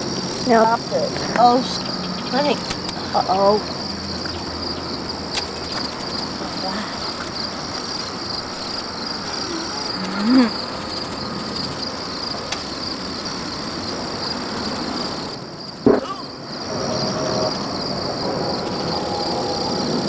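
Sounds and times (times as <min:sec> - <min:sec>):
crickets chirring: 0:00.0 - 0:20.0
woman vocal sound: 0:09.4 - 0:10.6.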